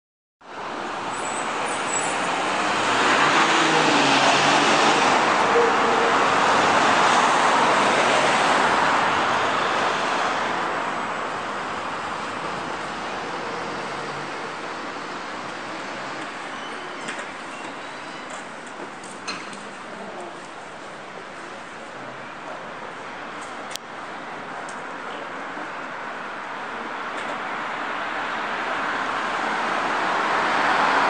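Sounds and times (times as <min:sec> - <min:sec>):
vehicle passing by: 0:02.5 - 0:05.3.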